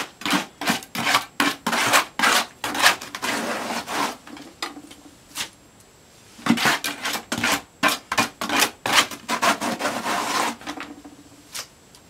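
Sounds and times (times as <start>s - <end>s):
wet concrete scraping in bucket: 0.0s - 4.6s, 6.4s - 11.0s.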